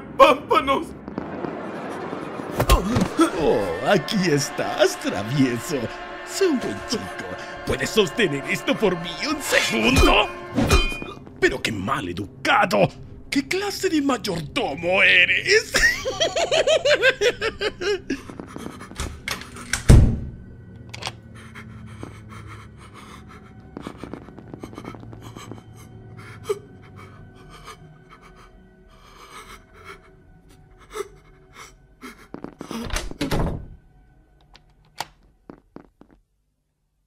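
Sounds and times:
faint background music: 0:02.6 - 0:35.6
heavy panting breaths: 0:17.8 - 0:19.7, 0:21.1 - 0:32.8.

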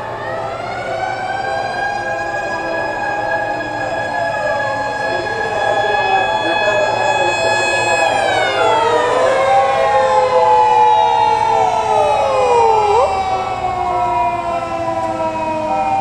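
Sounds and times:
emergency vehicle sirens wailing: 0:00.0 - 0:16.0
low rumble of traffic: 0:00.0 - 0:16.0.

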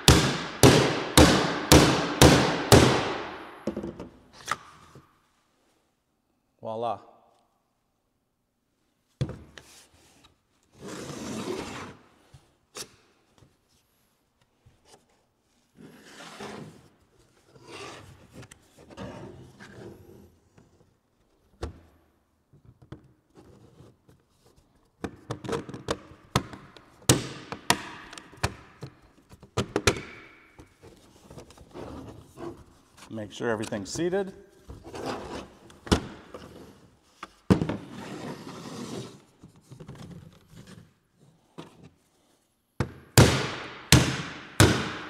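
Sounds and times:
plastic sliding and rubbing: 0:30.8 - 0:33.1, 0:34.7 - 0:42.5.

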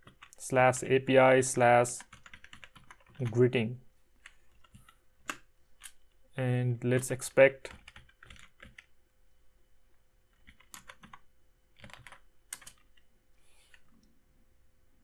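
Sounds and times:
faint keyboard typing: 0:00.0 - 0:00.9, 0:01.8 - 0:03.6, 0:04.2 - 0:06.2, 0:07.0 - 0:09.0, 0:10.3 - 0:14.2.

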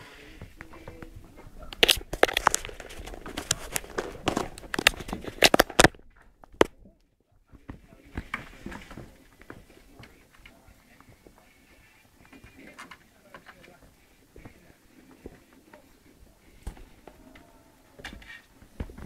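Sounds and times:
kitten claws scratching and tapping: 0:00.9 - 0:06.8.

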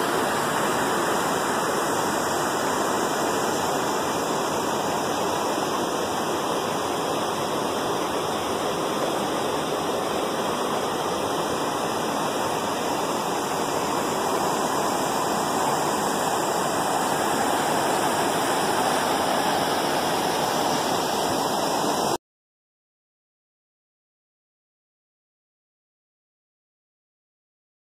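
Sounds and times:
rushing water: 0:00.0 - 0:22.2.

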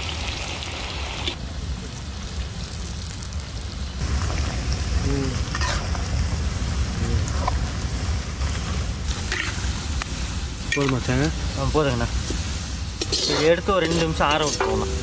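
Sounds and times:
onions sizzling in hot oil: 0:00.0 - 0:15.0.

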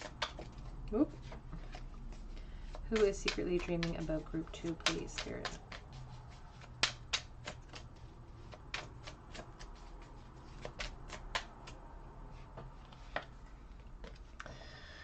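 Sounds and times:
cards being shuffled: 0:00.0 - 0:11.8.

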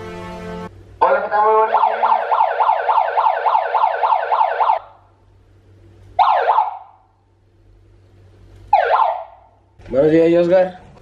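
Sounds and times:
megaphone siren wailing: 0:01.0 - 0:04.8.

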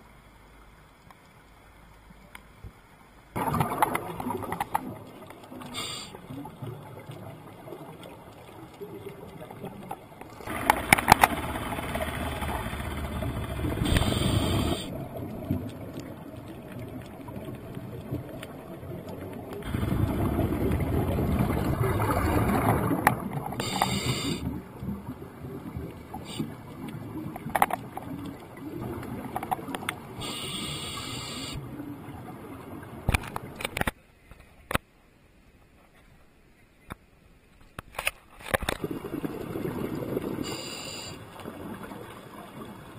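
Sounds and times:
exhaled bubbles underwater: 0:03.4 - 0:33.1, 0:38.8 - 0:42.9
regulator inhalation hiss: 0:05.7 - 0:06.2, 0:13.8 - 0:14.9, 0:23.6 - 0:24.5, 0:30.2 - 0:31.6, 0:40.4 - 0:41.2.

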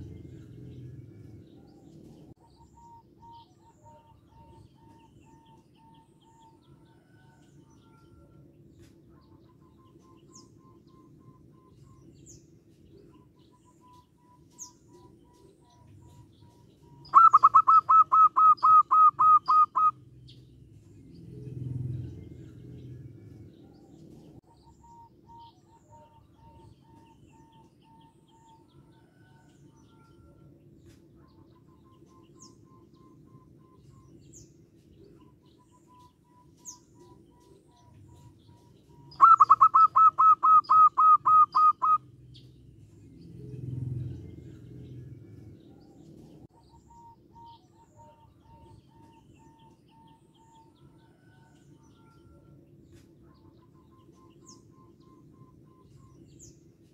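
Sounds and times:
low rumble: 0:00.0 - 0:02.4, 0:20.0 - 0:24.4, 0:42.2 - 0:46.5
dove calling: 0:00.0 - 0:08.4, 0:13.0 - 0:20.4, 0:21.3 - 0:42.5, 0:43.3 - 0:56.9.

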